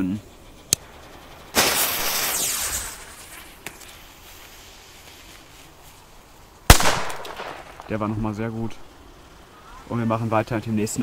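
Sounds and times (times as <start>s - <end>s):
lighter and fuse hissing: 1.6s - 5.6s.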